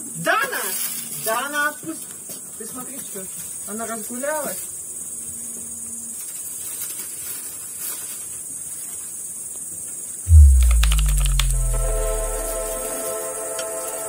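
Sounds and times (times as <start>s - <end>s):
deep bass boom sliding down: 10.3s - 13.0s
electronic music: 10.3s - 13.1s
high-pitched hiss: 10.3s - 13.2s.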